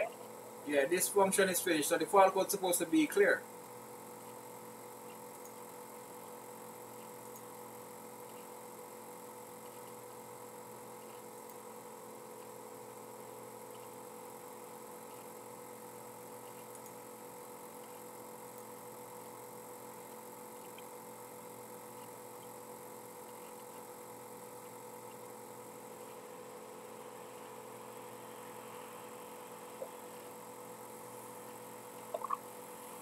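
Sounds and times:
electrical hum: 0.0s - 33.0s
faint ticks: 16.2s - 17.0s.

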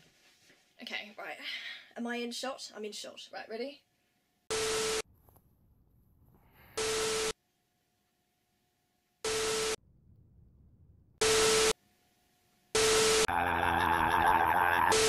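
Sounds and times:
static bursts with steady tone: 4.5s - 5.4s, 6.2s - 7.4s, 9.2s - 15.0s.

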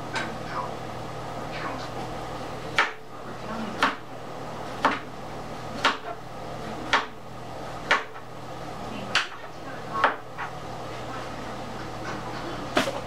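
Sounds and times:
knife chopping on cutting board: 2.8s - 3.0s, 3.8s - 4.0s, 4.8s - 5.1s, 5.8s - 6.2s, 6.8s - 7.2s, 7.8s - 8.2s.

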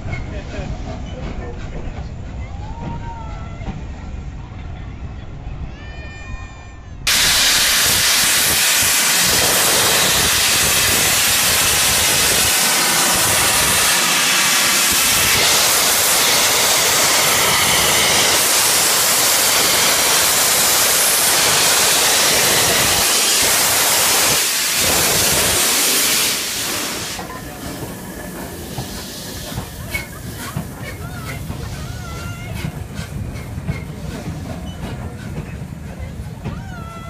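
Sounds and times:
steam locomotive venting steam: 7.1s - 36.5s.

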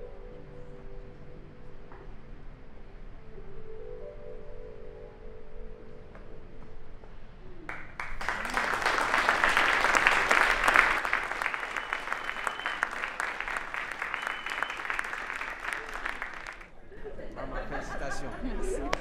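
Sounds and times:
audience applauding: 7.7s - 16.7s
crowd whooping: 8.1s - 16.7s.

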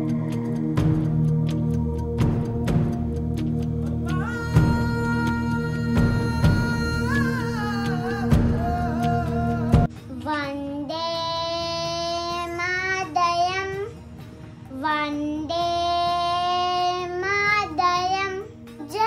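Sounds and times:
loud music: 0.0s - 10.0s.

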